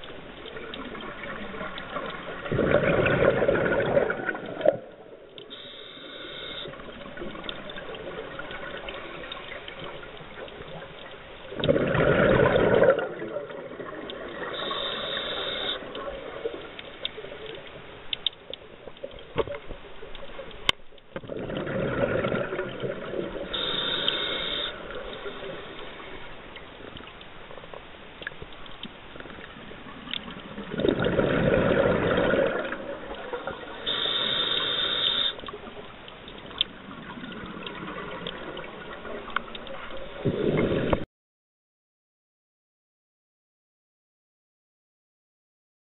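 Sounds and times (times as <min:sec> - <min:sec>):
exhaled bubbles rushing: 0:00.0 - 0:05.2, 0:11.5 - 0:14.8, 0:21.2 - 0:23.7, 0:30.3 - 0:33.8, 0:36.8 - 0:41.0
regulator inhale hiss: 0:05.5 - 0:06.9, 0:14.5 - 0:15.9, 0:23.5 - 0:26.3, 0:33.7 - 0:35.4.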